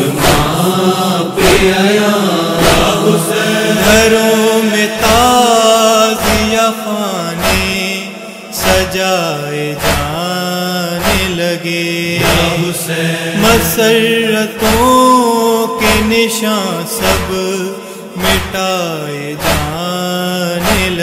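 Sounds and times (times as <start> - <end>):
male voices chanting a lament: 0.0 - 21.0
low thumping beat: 12.2 - 12.7.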